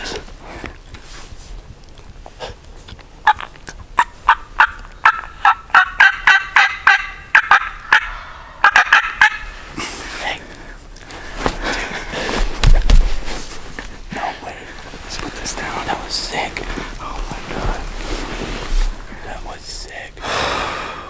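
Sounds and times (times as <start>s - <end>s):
turkey calling: 3.2s - 9.7s.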